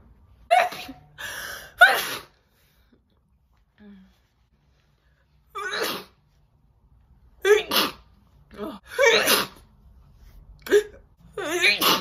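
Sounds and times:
woman sneezing: 1.8 - 2.4, 5.6 - 6.2, 7.4 - 8.1, 8.9 - 9.6, 10.6 - 12.0.

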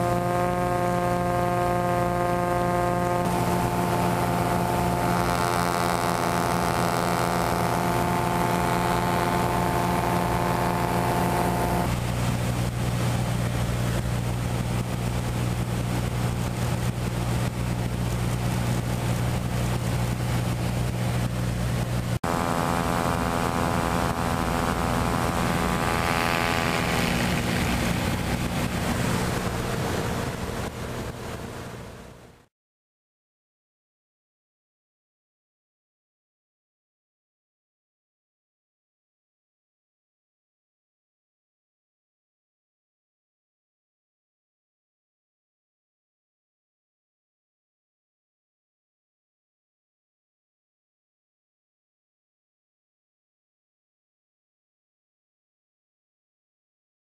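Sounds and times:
light aircraft engine drone: 0.0 - 32.5
wind rushing past: 23.8 - 32.2.

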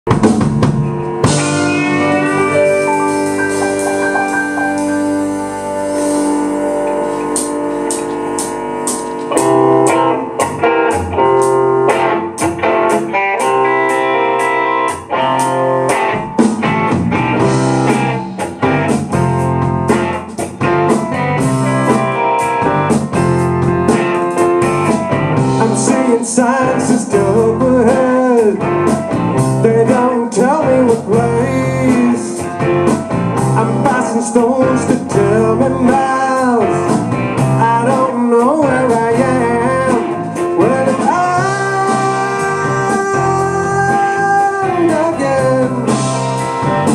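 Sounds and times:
drum hits: 0.1 - 6.4, 16.3 - 25.8
rock band playing: 0.1 - 46.9.

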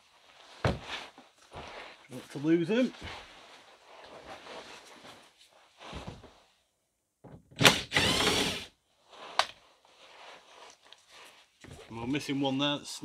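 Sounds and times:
cordless drill burst: 7.6 - 8.7.

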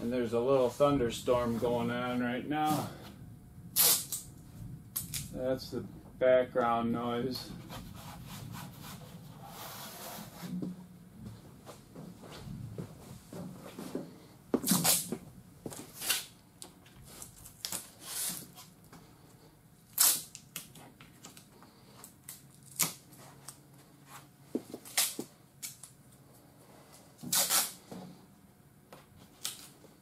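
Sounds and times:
masking tape ripping: 3.8 - 4.3, 4.9 - 5.4, 14.6 - 15.2, 15.9 - 16.4, 17.2 - 18.7, 19.9 - 21.5, 22.2 - 23.6, 24.8 - 25.9, 27.2 - 27.8, 29.3 - 29.8.

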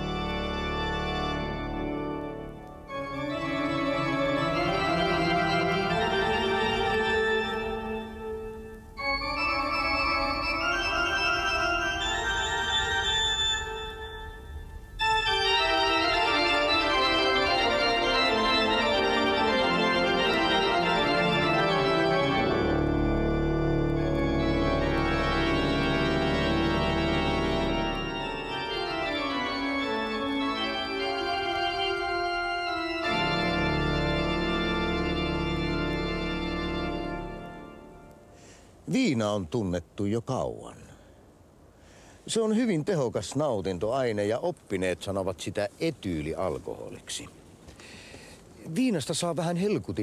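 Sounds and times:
deep bass organ notes: 0.0 - 38.2
organ playing sustained chords: 0.0 - 38.8.

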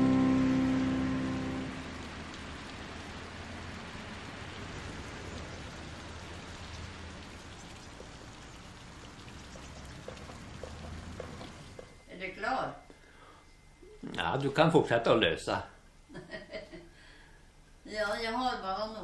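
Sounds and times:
music: 0.0 - 1.8
fountain water splashing: 0.0 - 12.0.

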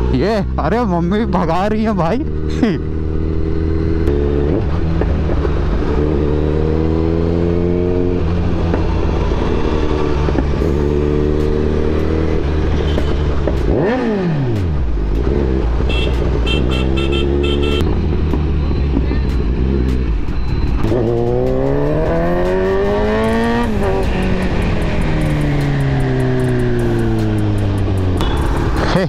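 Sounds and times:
motorcycle engine revving: 0.0 - 29.0
short high beeps: 28.2 - 28.8.

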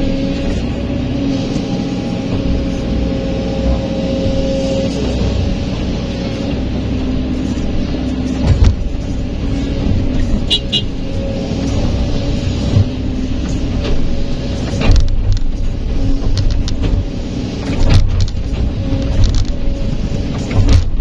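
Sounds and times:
excavator hydraulic whine: 0.0 - 15.0.

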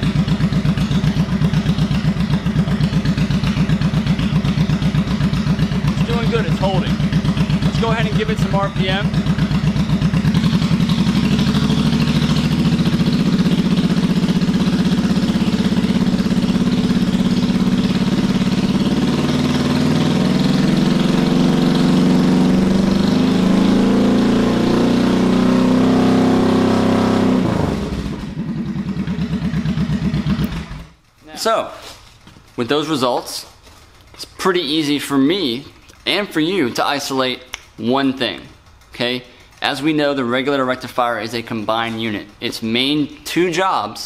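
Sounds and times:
motorcycle engine revving: 0.0 - 31.0.

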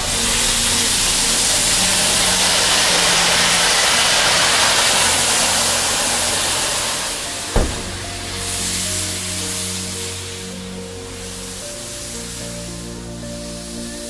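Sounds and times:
music playing: 0.0 - 14.0
steam locomotive hissing steam: 0.0 - 14.0
sharp knock: 7.5 - 8.4.

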